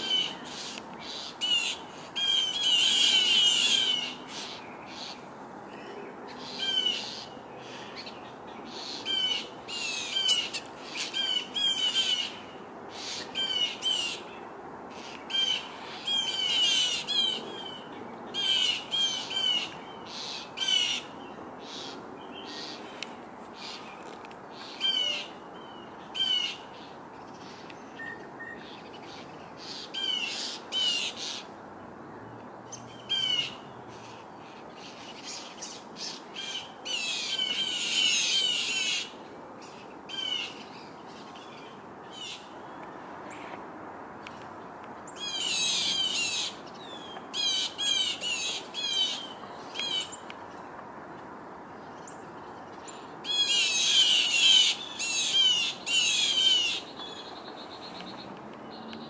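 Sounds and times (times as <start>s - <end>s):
birds giving harsh scolding calls: 0.0s - 5.2s, 45.1s - 50.2s, 53.2s - 58.3s.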